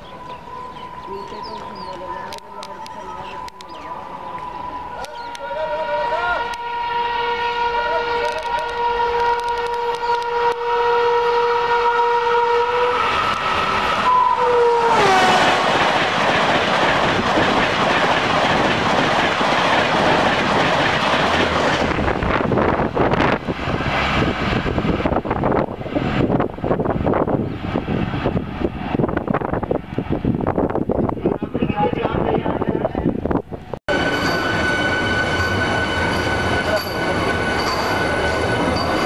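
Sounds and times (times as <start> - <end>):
train coaches rushing and rattling: 0.0 - 10.6, 12.9 - 29.8, 30.4 - 39.0
train horn blast: 2.8 - 15.9.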